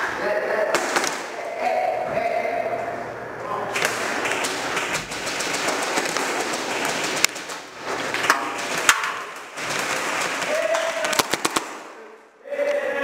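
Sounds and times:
steady noisy din: 0.0 - 13.0
airsoft gunfire cracks: 8.9 - 12.0.

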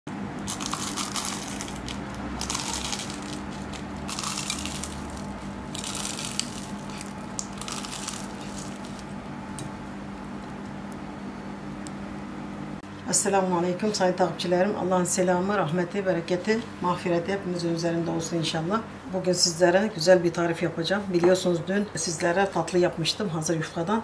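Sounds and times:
steady low hum: 0.1 - 24.0
pastry crackling and crunching: 0.4 - 10.8.

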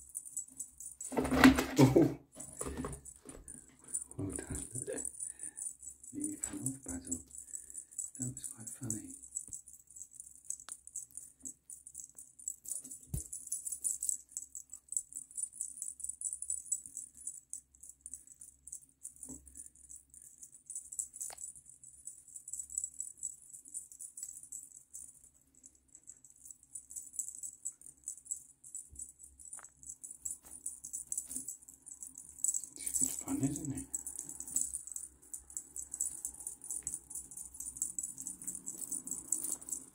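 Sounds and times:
small jingle bell tinkling: 0.0 - 39.9.

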